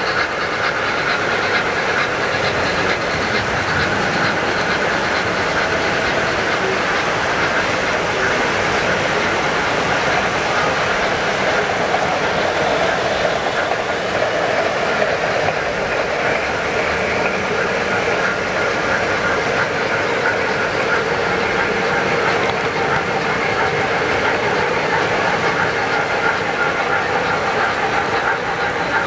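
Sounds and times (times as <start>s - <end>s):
model trains running on track: 0.0s - 29.0s.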